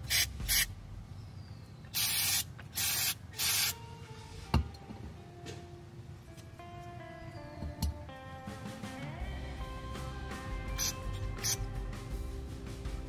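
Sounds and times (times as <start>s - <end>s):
aerosol spray hissing: 2.0s - 3.8s.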